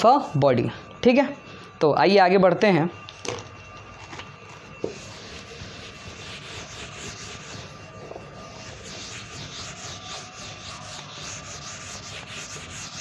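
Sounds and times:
faint steady hum: 0.0s - 13.0s
scratchy rubbing strokes: 4.4s - 13.0s.

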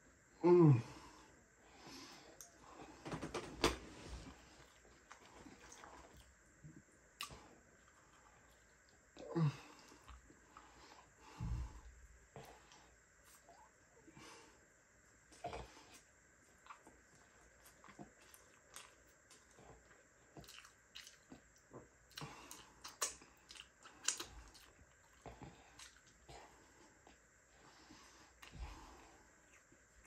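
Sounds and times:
man chewing and biting food: 4.3s - 6.4s, 15.3s - 27.3s, 28.3s - 30.0s.

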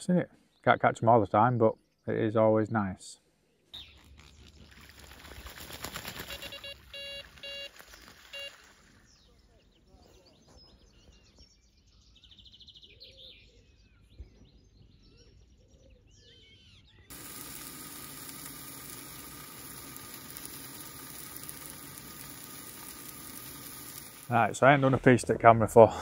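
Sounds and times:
birds singing and calling: 7.8s - 17.5s
steady hiss: 17.1s - 26.0s.

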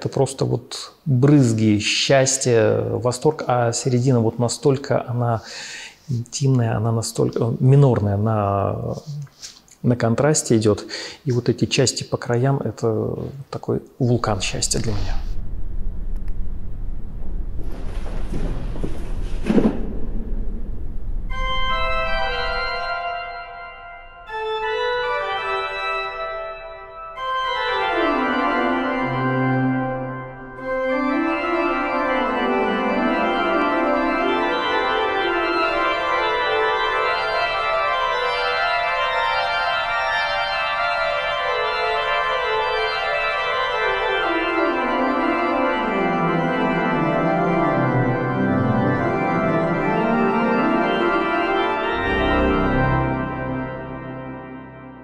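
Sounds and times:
pipe organ playing: 21.3s - 55.0s.

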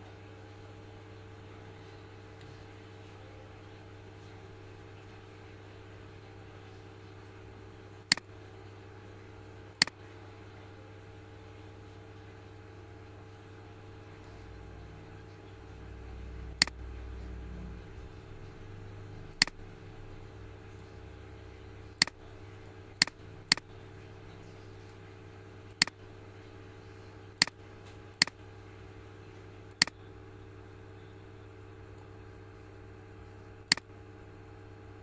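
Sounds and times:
low electrical hum: 0.0s - 35.0s
computer mouse clicking: 23.0s - 23.6s, 33.7s - 33.9s.

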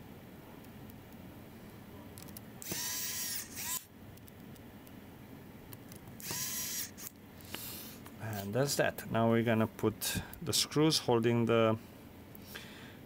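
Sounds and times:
electric screwdriver motor whine: 2.6s - 3.9s, 6.2s - 7.1s.

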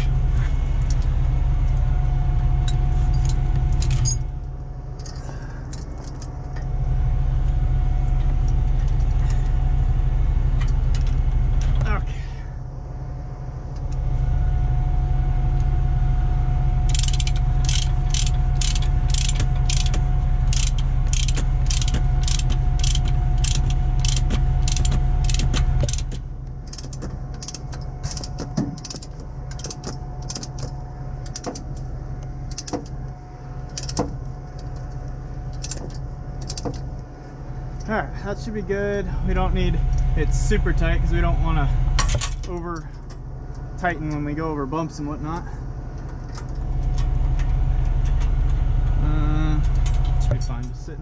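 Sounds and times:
vehicle engine rumbling: 0.0s - 51.0s
ratchet pawl clicking: 16.9s - 30.7s, 33.7s - 34.1s, 35.6s - 35.8s.

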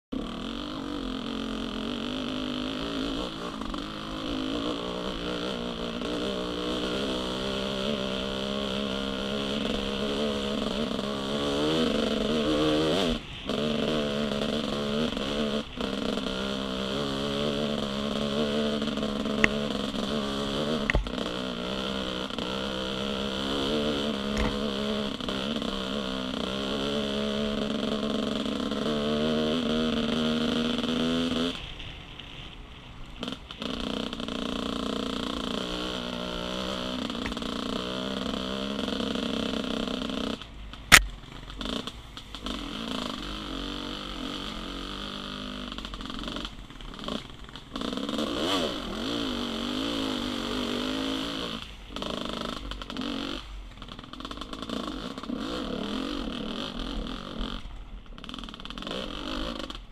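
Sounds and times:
dirt bike engine chugging: 0.1s - 59.9s.

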